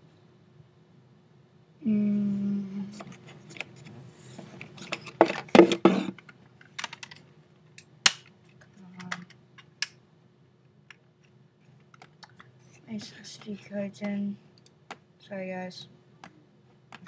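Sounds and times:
person humming: 1.8 - 3.0.

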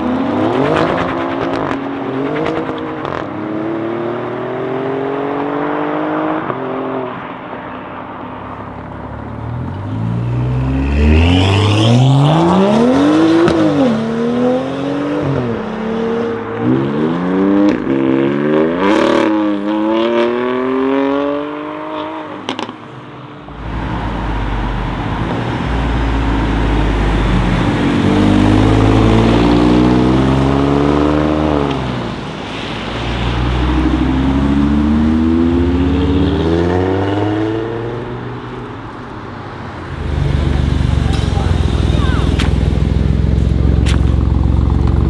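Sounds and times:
car engine accelerating hard: 9.6 - 22.7, 23.6 - 32.2.

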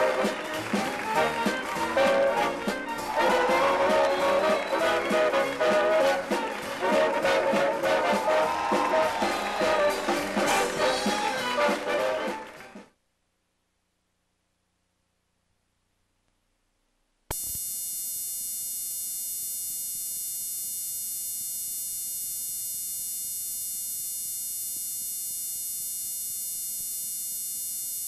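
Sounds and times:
loud electrical buzz: 17.3 - 28.0.

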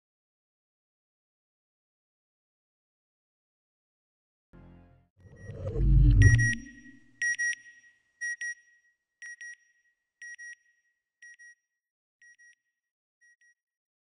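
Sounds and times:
short high electronic beeps: 5.3 - 7.1.

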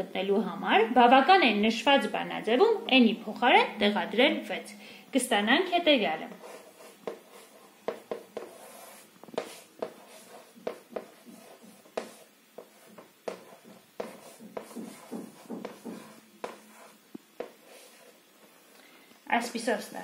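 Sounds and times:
chalk tapping and scraping on chalkboard: 6.3 - 18.6.

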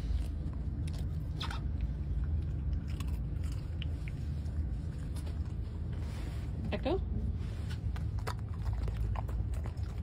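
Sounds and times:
dog crunching a treat: 0.0 - 5.6, 7.7 - 10.0
bus rumble: 0.0 - 10.0.

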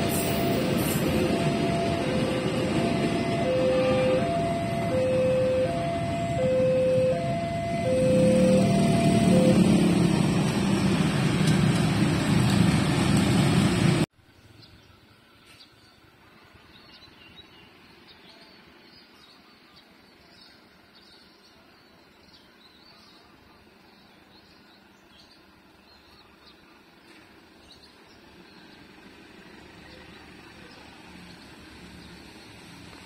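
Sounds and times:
diesel locomotive approaching: 0.0 - 15.0, 23.4 - 33.0.

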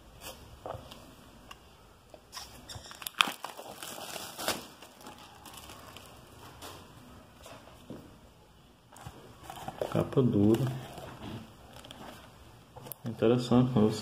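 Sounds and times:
book rustling and crinkling: 8.9 - 13.9.

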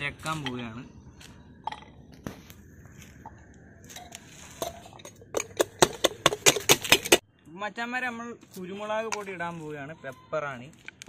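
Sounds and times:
wooden pestle pounding in steel cup: 4.6 - 7.2.

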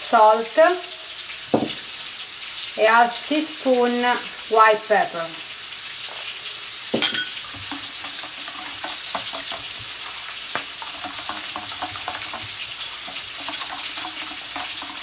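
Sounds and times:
bacon sizzling in pan: 0.0 - 15.0
whisk clicking in metal bowl: 7.5 - 9.9, 10.5 - 15.0.

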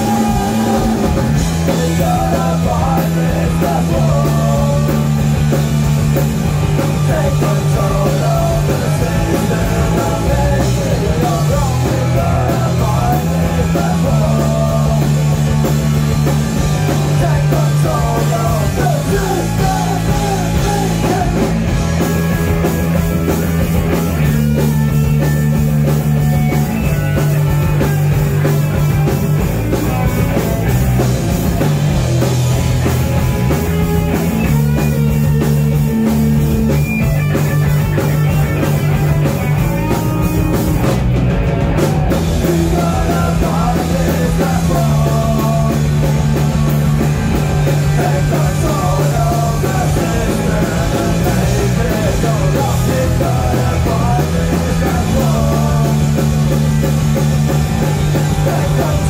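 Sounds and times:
man singing: 0.0 - 5.3, 6.7 - 15.7, 16.8 - 21.8, 42.2 - 46.7, 47.6 - 56.9, 58.0 - 59.0
drum kit: 0.0 - 59.0
electric bass: 0.0 - 59.0
electric guitar: 0.0 - 59.0.

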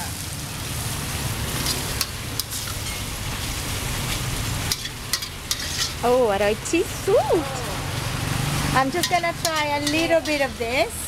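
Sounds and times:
low rumble of gas flame: 0.0 - 11.0
wok sizzling: 0.0 - 11.0
steel ladle clinking on wok: 9.0 - 10.5.

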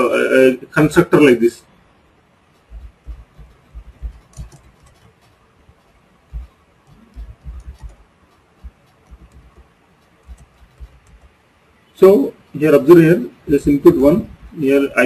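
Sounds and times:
typing on computer keyboard: 2.5 - 11.6.

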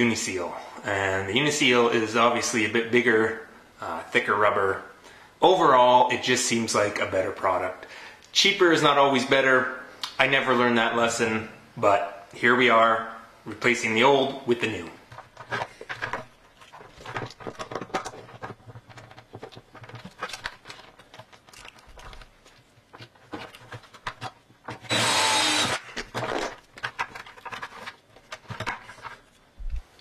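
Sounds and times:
knocks and clicks of handling: 15.1 - 24.9, 26.0 - 30.0
cordless drill running: 24.9 - 25.9.

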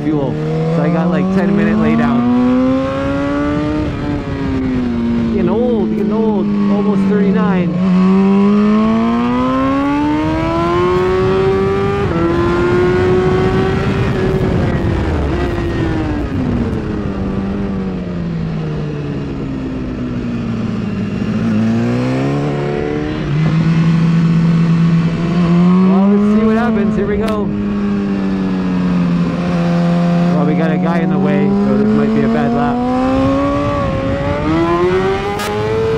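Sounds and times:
motorcycle engine revving: 0.0 - 35.9
wind rush: 0.0 - 35.9.

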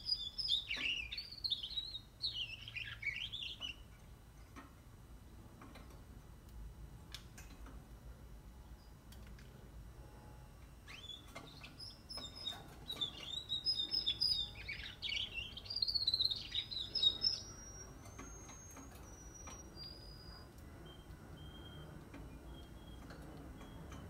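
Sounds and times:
canary chirping and warbling: 0.0 - 3.9, 10.8 - 24.0
thin whistled bird notes: 10.9 - 24.0.

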